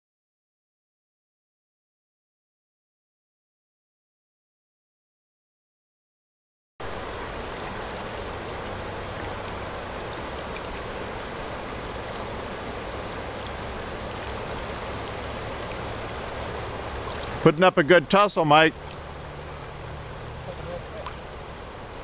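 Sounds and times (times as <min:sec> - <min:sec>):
river water rushing: 0:06.8 - 0:22.0.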